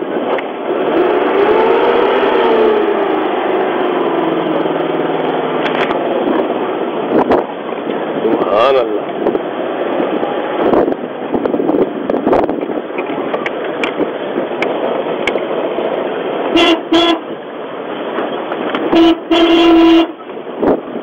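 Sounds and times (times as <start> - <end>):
vehicle engine and road noise: 0.0 - 21.0
vehicle horn toots: 16.5 - 17.3, 18.9 - 20.2.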